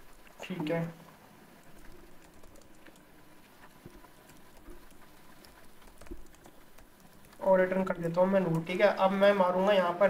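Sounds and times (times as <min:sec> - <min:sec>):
computer keyboard typing: 0:01.6 - 0:08.8.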